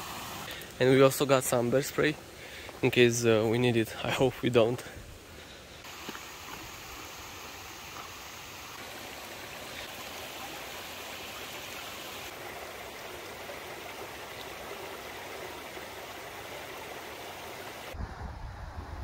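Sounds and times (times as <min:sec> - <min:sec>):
stream rushing water: 0:05.2 - 0:18.0.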